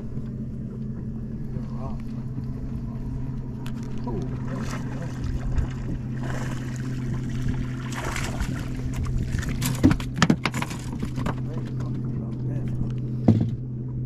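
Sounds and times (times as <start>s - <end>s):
steady low hum: 0.0s - 14.0s
fish thrashing and splashing: 3.2s - 11.6s.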